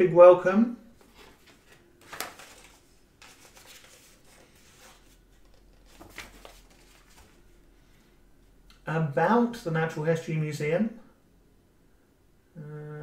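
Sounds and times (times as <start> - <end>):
paper pages rustling: 1.0 - 7.5.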